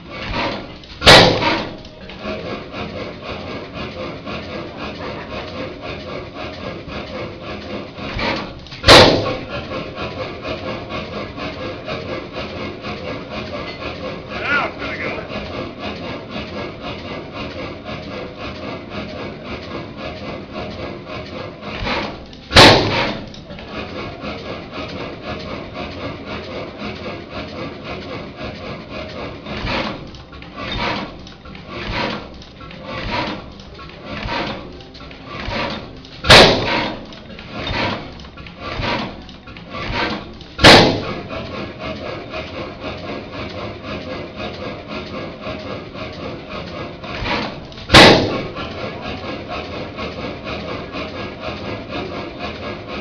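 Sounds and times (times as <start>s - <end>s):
soft flywheel thuds: 0.0s - 3.5s
engine mechanical clatter: 0.0s - 53.0s.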